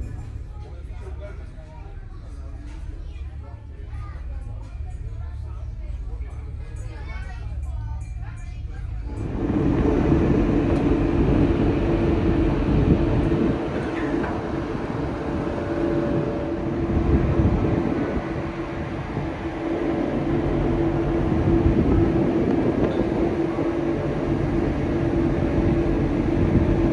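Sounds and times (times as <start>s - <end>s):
ship engines droning: 0.0s - 26.9s.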